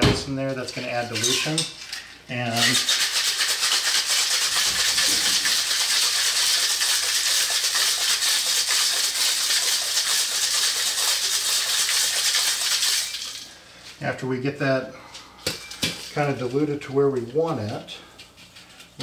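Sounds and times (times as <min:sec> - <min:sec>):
ice rattling in cocktail shaker: 0:01.0 - 0:13.5.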